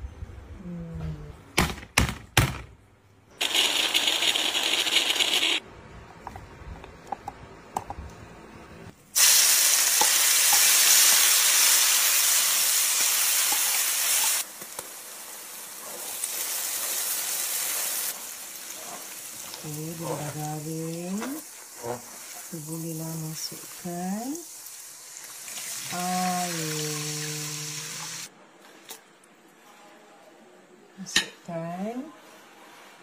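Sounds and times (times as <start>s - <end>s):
paste sizzling in hot oil: 9.2s - 28.3s.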